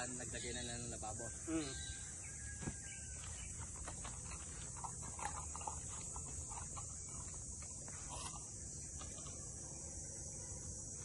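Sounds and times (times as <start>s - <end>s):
high-pitched insect drone: 0.0s - 11.0s
faint animal calls: 0.2s - 3.2s.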